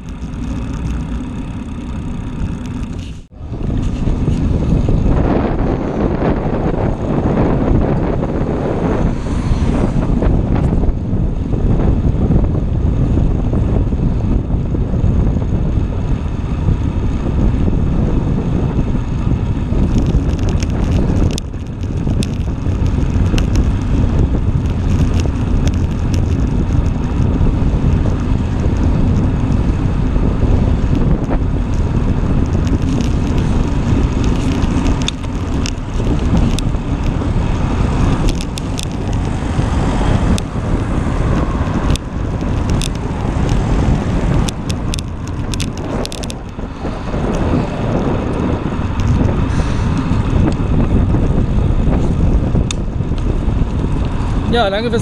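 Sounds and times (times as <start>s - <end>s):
tyre and frame rumble: 0.0s - 55.0s
wind buffeting microphone: 0.0s - 55.0s
light clicks and rattles: 19.8s - 23.9s, 24.6s - 28.0s, 32.4s - 37.2s, 38.0s - 39.4s, 41.4s - 51.2s.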